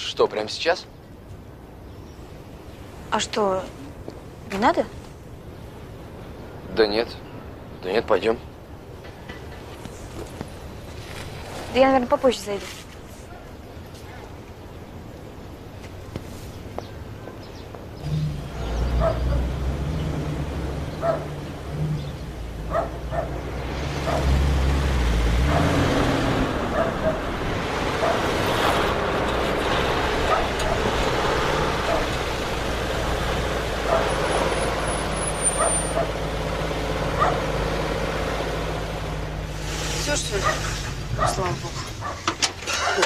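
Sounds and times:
dog barking: 19.0s - 19.5s, 21.0s - 21.4s, 22.7s - 23.4s, 24.0s - 24.3s, 25.5s - 25.8s, 26.7s - 27.3s, 28.0s - 28.3s, 30.2s - 30.9s, 31.8s - 32.2s, 33.8s - 34.2s, 35.5s - 36.2s, 37.2s - 37.5s, 40.4s - 43.0s.

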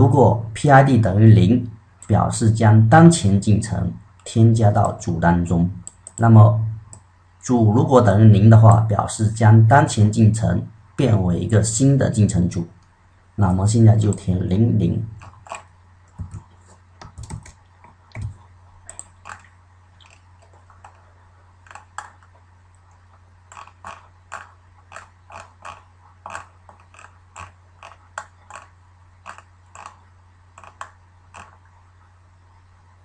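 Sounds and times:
faint electrical hum: 0.0s - 33.0s
keyboard keys clicking: 15.2s - 19.4s.

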